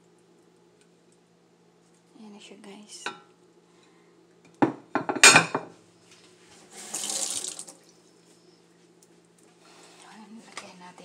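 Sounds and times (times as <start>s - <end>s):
tap water running: 6.6s - 8.0s.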